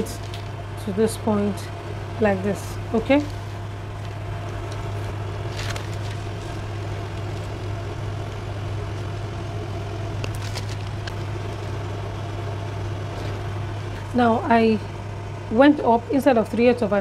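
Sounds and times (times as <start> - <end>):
steady low hum: 0.0 - 17.0
paper rustling: 3.1 - 9.1, 10.2 - 11.7.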